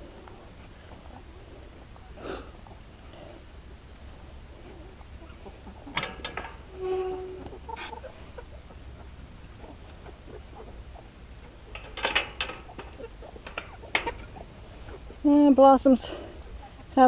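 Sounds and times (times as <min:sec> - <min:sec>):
hen calling: 0:04.5 - 0:17.0
sharp clicks and knocks: 0:05.9 - 0:06.7, 0:11.4 - 0:14.4.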